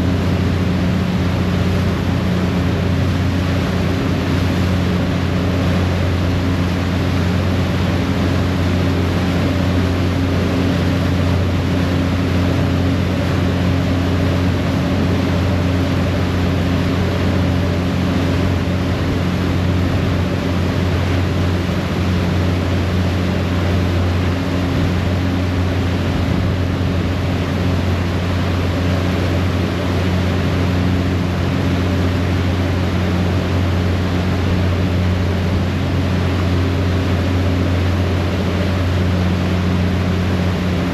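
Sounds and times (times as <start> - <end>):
propeller wash rushing: 0.0 - 40.9.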